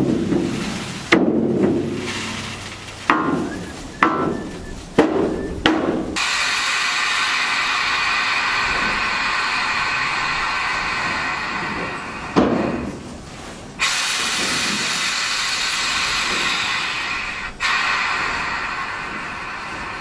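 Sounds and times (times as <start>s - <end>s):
rushing hiss of unloading: 0.0s - 20.0s.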